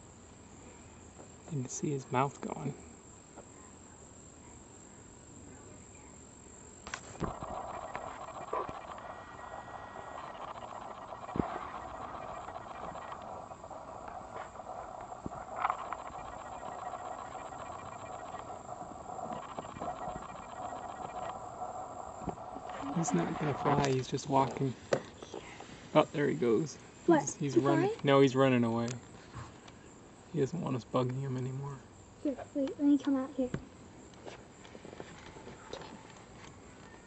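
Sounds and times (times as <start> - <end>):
high-pitched insect trill: 0.0 - 37.0
steady rushing noise: 6.9 - 24.9.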